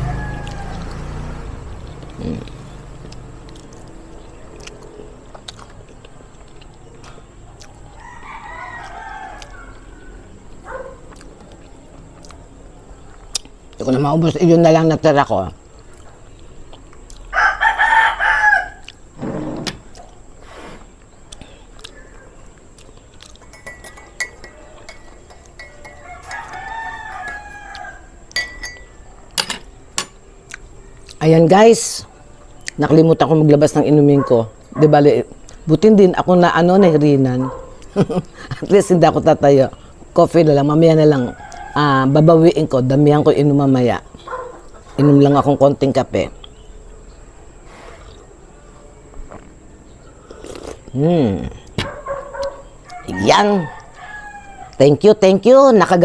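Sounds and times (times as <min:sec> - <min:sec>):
rooster crowing: 0:00.0 - 0:01.7, 0:07.9 - 0:10.9, 0:17.3 - 0:19.0, 0:24.2 - 0:29.2, 0:41.0 - 0:42.3, 0:51.9 - 0:54.9
spoon clinking on dishes: 0:23.4 - 0:27.4, 0:28.3 - 0:30.2.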